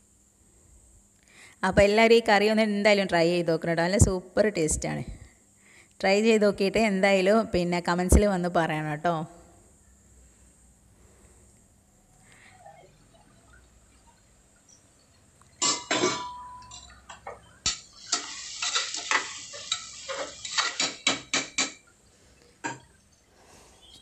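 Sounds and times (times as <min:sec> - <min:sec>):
food frying in oil: 0:12.9 - 0:24.0
spatula scraping metal pot: 0:17.7 - 0:21.4.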